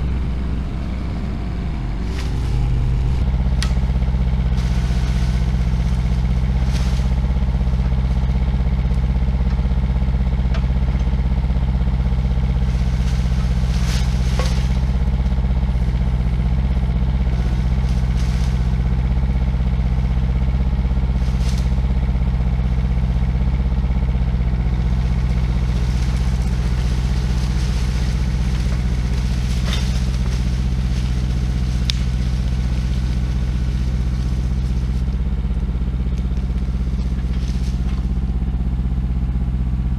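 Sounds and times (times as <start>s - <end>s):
excavator diesel engine running: 0.0s - 39.9s
sharp cracks and knocks: 12.8s - 15.0s, 25.6s - 35.2s.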